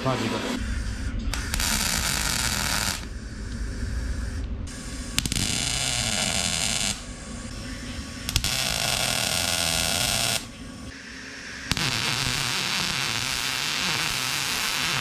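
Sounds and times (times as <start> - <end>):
low hum: 0.0 - 15.0
welder arc crackling and sizzling: 1.3 - 3.1, 4.7 - 10.6, 11.7 - 15.0.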